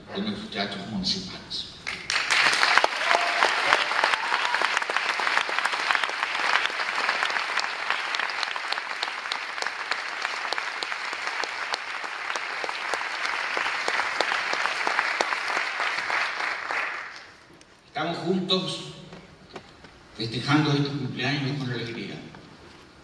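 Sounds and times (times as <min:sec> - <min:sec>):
audience applauding: 0:01.9 - 0:17.5.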